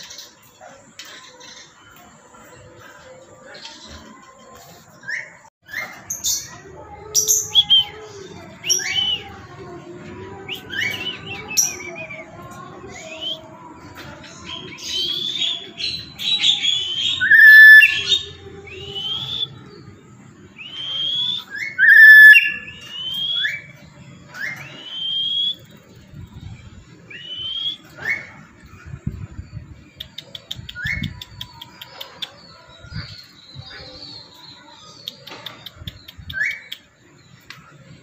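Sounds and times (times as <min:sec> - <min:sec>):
parrot shrill whistled calls: 0:16.6 - 0:19.6, 0:20.6 - 0:23.7.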